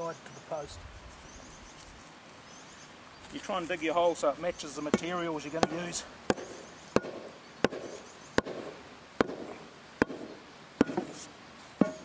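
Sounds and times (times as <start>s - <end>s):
post hole rammer striking: 4.9s - 12.0s.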